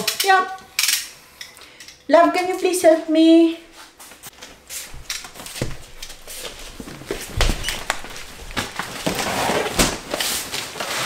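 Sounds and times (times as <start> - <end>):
cardboard scraping and rustling: 4.4 - 11.0
cardboard box knocks and thuds: 5.0 - 10.2.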